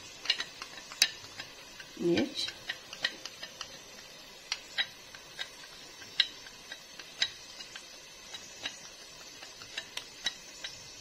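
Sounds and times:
spoon tapping steel pot: 0:00.2 - 0:10.8.

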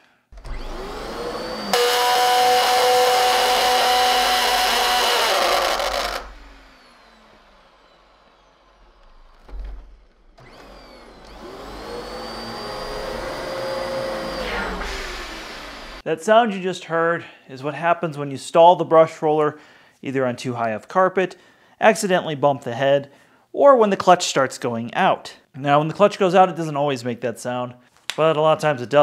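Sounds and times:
vacuum cleaner motor: 0:00.4 - 0:09.5, 0:10.4 - 0:16.0
loud steady screech: 0:01.6 - 0:08.6.

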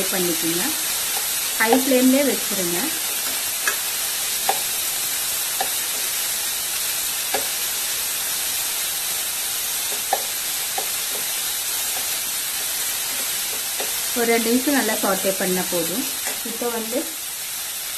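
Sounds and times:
vegetables sizzling in a pan: 0:00.0 - 0:17.9
spatula clicking against pan: 0:01.1 - 0:02.0, 0:03.2 - 0:04.8, 0:05.6 - 0:06.2, 0:07.3 - 0:07.6, 0:09.8 - 0:12.2, 0:13.4 - 0:14.0.

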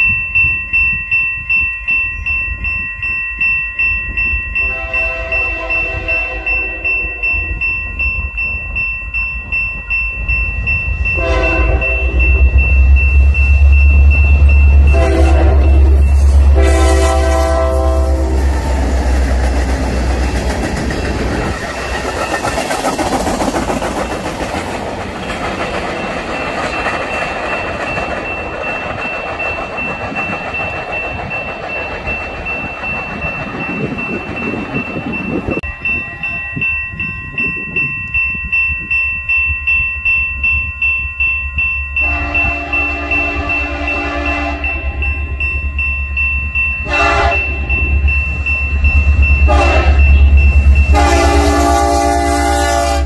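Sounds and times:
crossing bell ringing: 0:00.0 - 0:53.0
locomotive horn blasts: 0:04.6 - 0:07.3, 0:11.2 - 0:12.5, 0:14.8 - 0:18.8, 0:42.0 - 0:44.9, 0:46.9 - 0:47.6, 0:49.5 - 0:53.0
freight cars rolling on rails: 0:05.2 - 0:39.3
locomotive engine rumble: 0:09.4 - 0:38.2.

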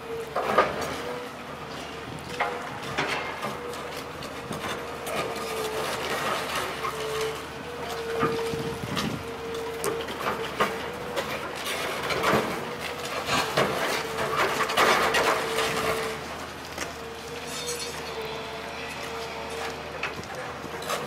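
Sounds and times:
excavator engine humming: 0:00.0 - 0:21.0
concrete crunching and clattering: 0:00.2 - 0:21.0.

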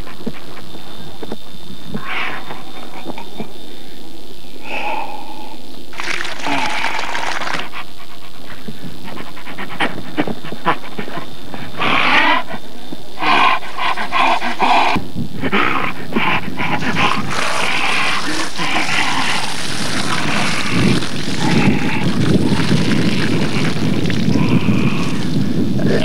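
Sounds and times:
dog vocalizing: 0:06.0 - 0:26.0.

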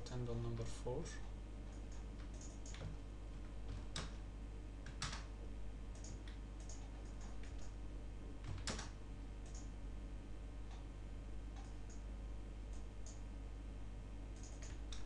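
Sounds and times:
low electrical hum: 0:00.0 - 0:15.0
mouse and keyboard clicks: 0:01.7 - 0:02.9, 0:06.0 - 0:07.8, 0:14.4 - 0:15.0.

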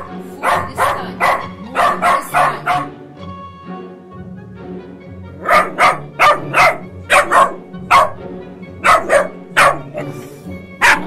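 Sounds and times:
puppy barking: 0:00.0 - 0:03.0, 0:05.4 - 0:11.0
background music: 0:00.0 - 0:11.0.

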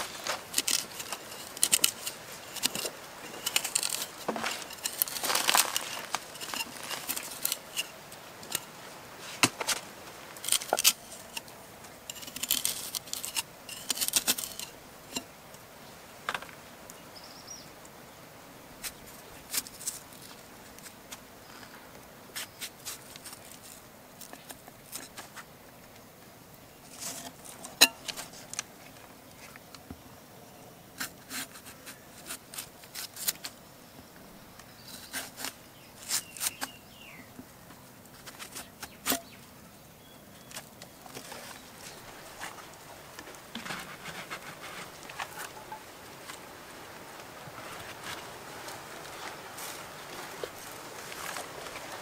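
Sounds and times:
pieces dropping onto leaves: 0:00.0 - 0:11.5
knife cutting fruit and vegetables: 0:00.4 - 0:05.2, 0:10.4 - 0:11.5, 0:12.1 - 0:14.7, 0:34.9 - 0:36.8.

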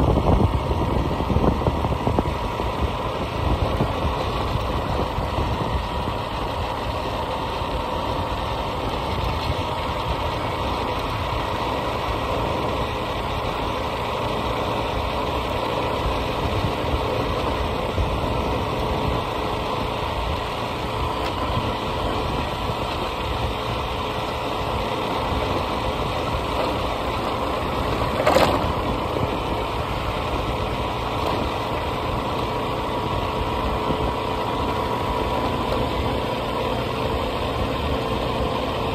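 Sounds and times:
vehicle engine running: 0:00.0 - 0:38.9.

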